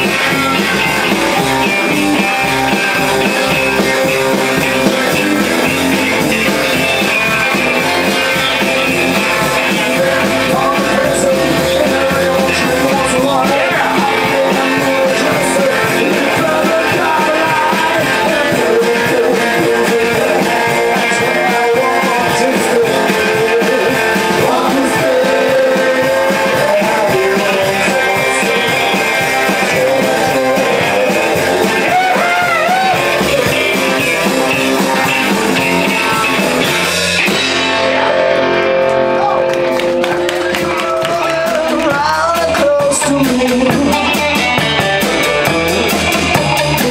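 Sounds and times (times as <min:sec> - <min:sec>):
live rock band playing: 0:00.0 - 0:46.9
man singing into microphone: 0:09.4 - 0:33.5, 0:40.7 - 0:44.6.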